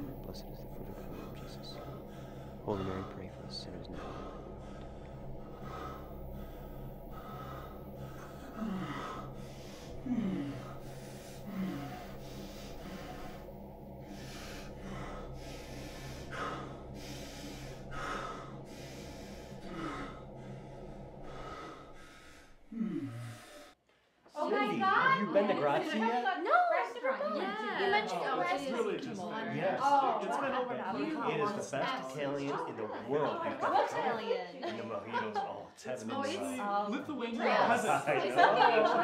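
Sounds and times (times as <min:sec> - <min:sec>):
steady low hum: 0:00.0 - 0:23.8.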